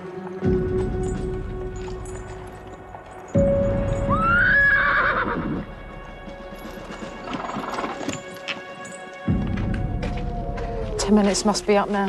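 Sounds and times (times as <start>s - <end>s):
hooves clopping: 0.0s - 12.0s
horse whinnying: 4.1s - 5.7s.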